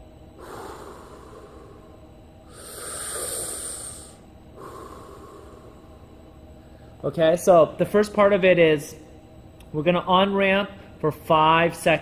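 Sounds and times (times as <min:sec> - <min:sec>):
man breathing deeply: 0:00.3 - 0:07.0.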